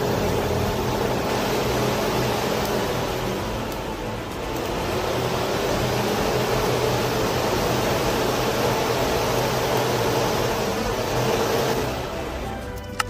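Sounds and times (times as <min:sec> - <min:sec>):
exhaust fan air rush: 0:00.0 - 0:13.0
fan motor hum: 0:00.0 - 0:13.0.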